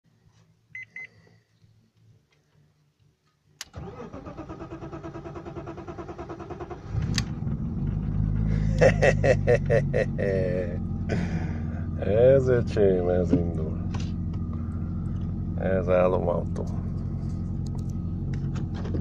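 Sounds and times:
short beeps: 0.7s - 1.2s
click: 3.0s - 3.8s
car engine cranking and starting: 3.6s - 19.0s.

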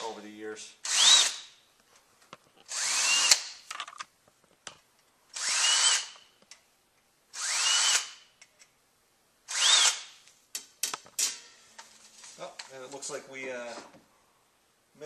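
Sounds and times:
power drill whine: 2.7s - 3.4s, 5.4s - 6.2s, 7.4s - 8.2s, 9.5s - 10.1s.

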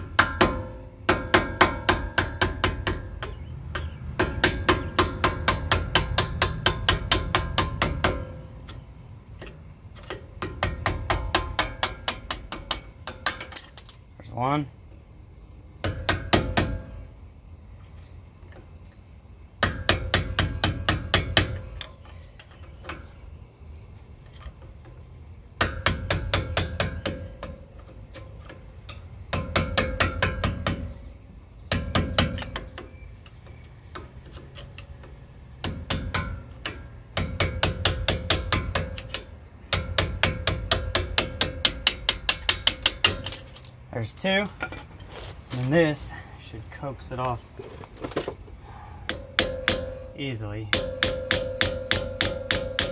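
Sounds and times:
hammer striking metal: 0.2s - 8.4s, 10.4s - 13.9s, 15.8s - 17.1s, 19.6s - 22.0s, 35.6s - 43.7s, 49.0s - 52.9s
faint metallic ring: 49.0s - 52.5s.

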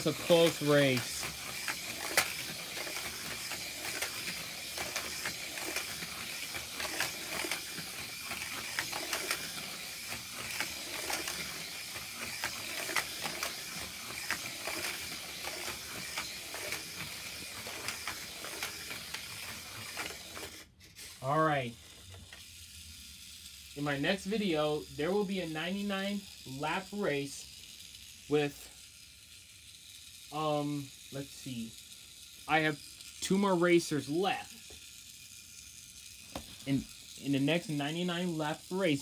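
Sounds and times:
steady hiss: 0.0s - 1.2s, 30.3s - 31.7s
small clicks and ticks: 0.0s - 20.6s.

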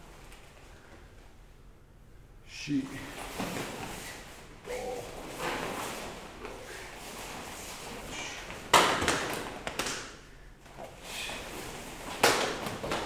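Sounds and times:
uniforms snapping: 8.6s - 10.2s.

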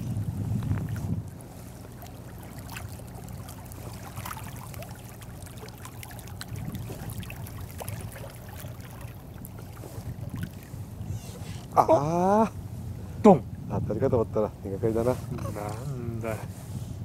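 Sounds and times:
small waves lapping: 0.0s - 13.6s.

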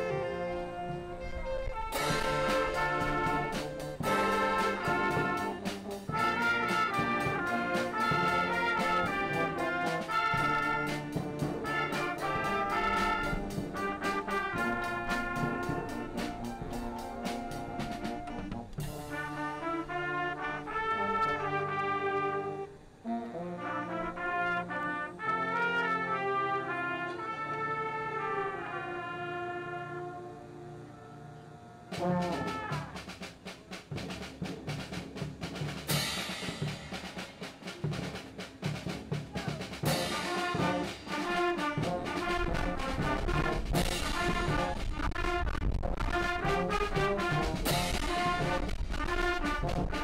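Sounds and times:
concert band playing: 0.0s - 22.6s, 31.9s - 50.0s
brass sustained chords: 0.0s - 33.1s, 39.8s - 50.0s
cymbal crashes: 2.0s - 4.8s, 35.9s - 37.8s, 39.8s - 41.2s, 47.6s - 48.8s
drum beat: 2.0s - 19.4s, 31.9s - 50.0s.

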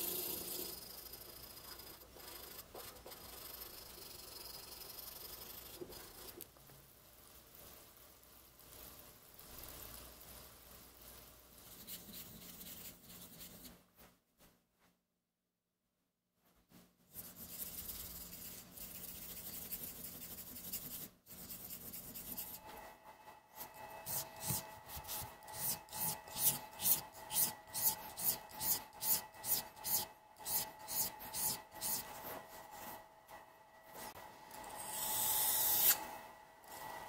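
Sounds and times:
blade sharpening on whetstone: 23.6s - 32.2s, 34.8s - 36.0s.

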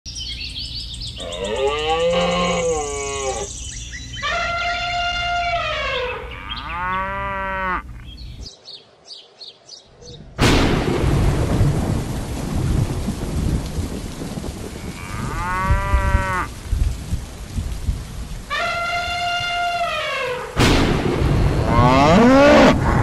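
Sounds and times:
cow mooing: 1.2s - 3.5s, 4.3s - 7.8s, 21.6s - 22.8s
thunder crack: 10.4s - 18.0s, 20.6s - 23.0s
heavy rain: 10.4s - 23.0s.

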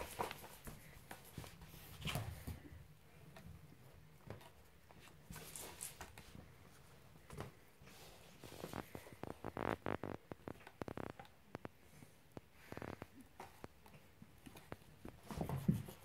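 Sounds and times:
cats scuffling and scratching: 0.0s - 16.0s.

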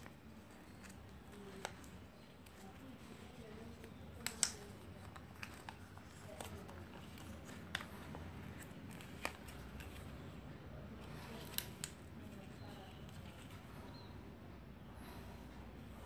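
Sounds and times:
paper being folded: 0.0s - 10.5s
paper crackling: 0.0s - 10.5s.

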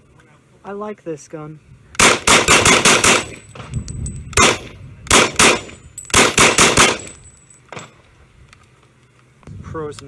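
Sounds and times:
gunshots: 2.0s - 3.4s, 4.4s - 7.2s.

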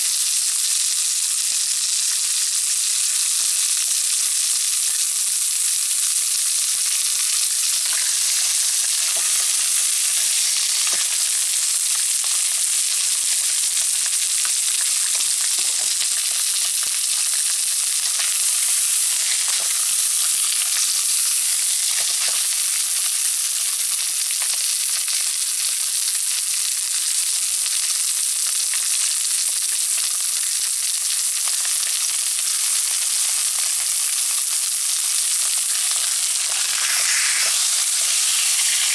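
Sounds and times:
meat sizzling in a pan: 0.0s - 38.9s
fat crackling and popping: 13.4s - 23.4s, 29.5s - 38.9s.

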